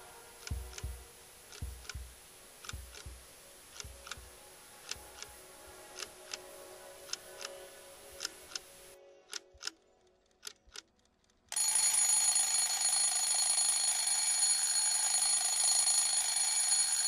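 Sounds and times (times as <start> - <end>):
sharp ticks: 0.4 - 5.4, 9.3 - 12.0
bell ringing continuously: 11.6 - 17.0.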